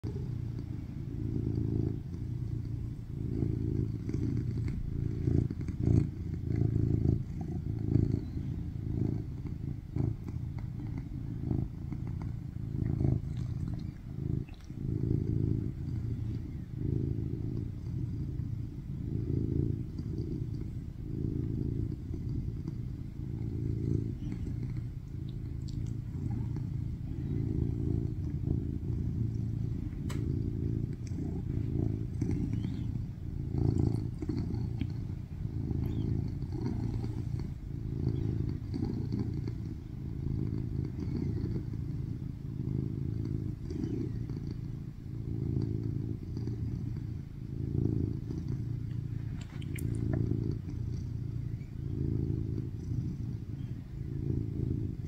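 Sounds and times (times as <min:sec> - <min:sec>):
cat purring loudly: 0:00.0 - 0:55.0
faint clicks: 0:25.2 - 0:26.4, 0:29.3 - 0:31.1, 0:48.9 - 0:50.6.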